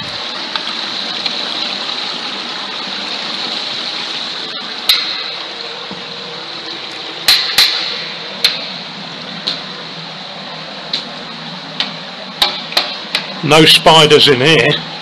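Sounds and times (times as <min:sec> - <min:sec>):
water running through pipe: 0:00.0 - 0:15.0
knocks ringing in pipe: 0:04.9 - 0:06.1, 0:07.2 - 0:08.8.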